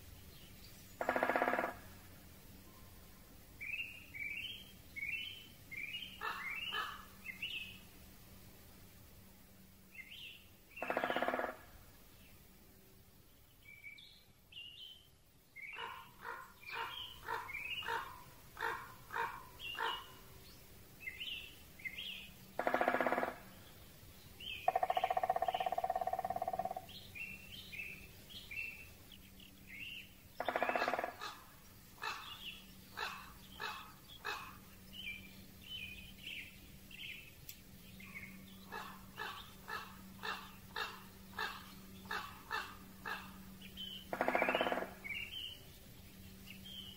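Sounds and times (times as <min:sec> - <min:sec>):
faint hiss: 0:00.0 - 0:01.0, 0:01.8 - 0:10.8, 0:11.6 - 0:22.6, 0:23.4 - 0:24.7
songbird call notes: 0:00.0 - 0:08.1, 0:09.8 - 0:12.5, 0:13.2 - 0:46.9.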